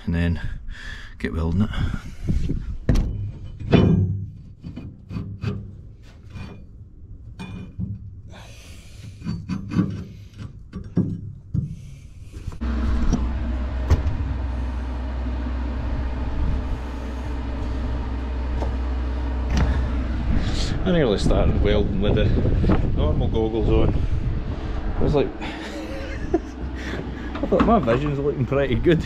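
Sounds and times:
engine running: 11.7s - 29.0s.

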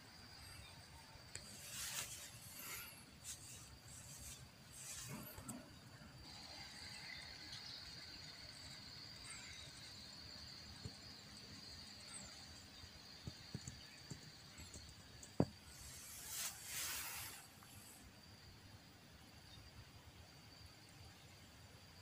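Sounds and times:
high-pitched insect drone: 0.0s - 18.5s
rush of hiss: 1.5s - 5.4s, 15.6s - 18.1s.

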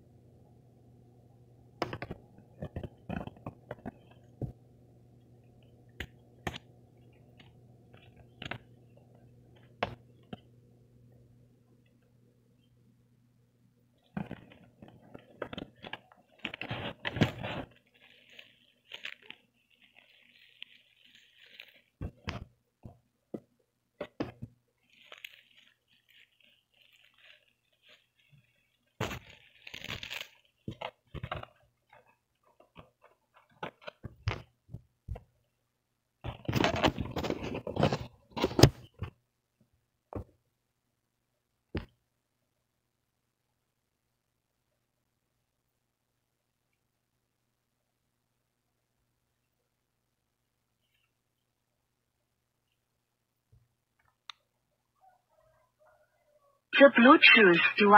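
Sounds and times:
plastic packing crinkling: 14.0s - 34.6s.

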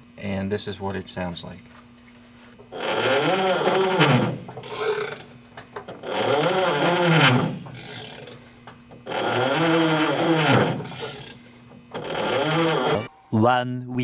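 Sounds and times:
jet engine turned by hand: 2.6s - 13.1s.

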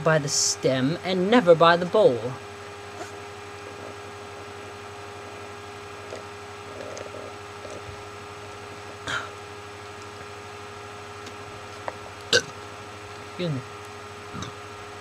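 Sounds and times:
electrical hum: 0.0s - 15.0s
person hiccuping: 9.0s - 9.4s.

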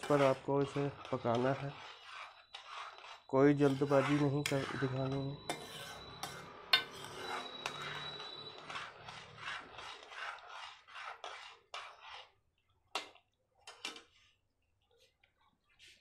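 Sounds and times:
metal spoon scraping a pan: 0.0s - 14.3s
spoon clinking on pan: 5.5s - 8.2s.

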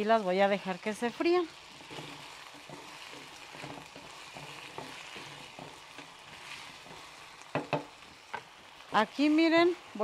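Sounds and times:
potatoes sizzling in hot oil: 0.0s - 10.0s
wooden spoon scraping and knocking pot: 1.7s - 8.5s.

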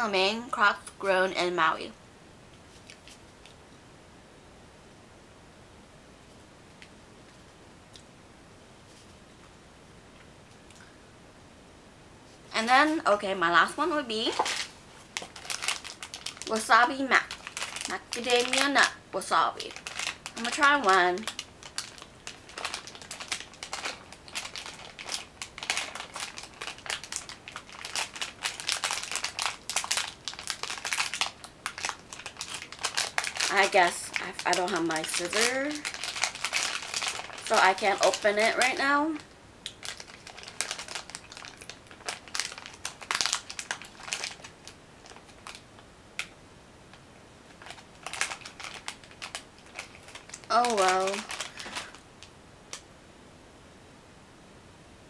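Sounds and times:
snack package crinkling: 14.3s - 19.0s, 19.6s - 46.4s, 47.5s - 52.8s.

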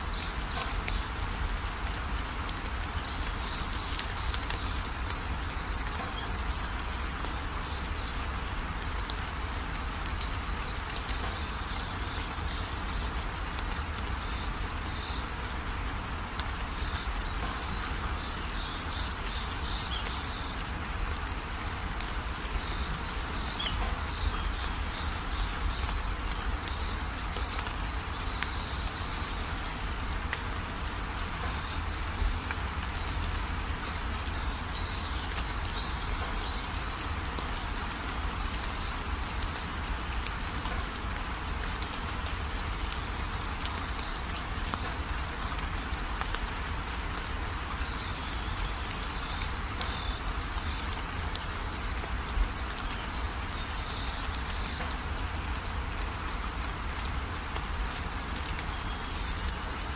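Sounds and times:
birds chirping: 0.0s - 45.9s
rain hiss: 0.0s - 59.9s.

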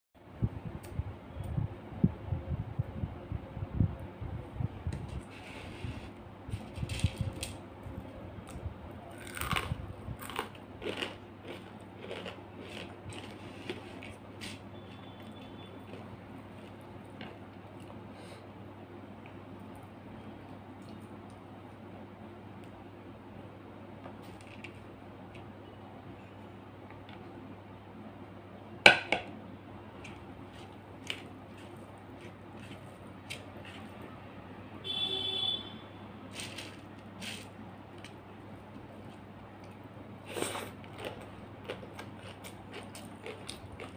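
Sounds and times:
crunching crispy potato sticks: 8.4s - 17.4s, 36.3s - 43.9s.

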